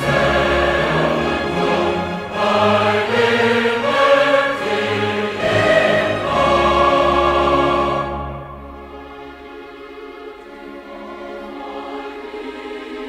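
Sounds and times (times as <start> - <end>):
choral and orchestral music: 0.0 - 13.0.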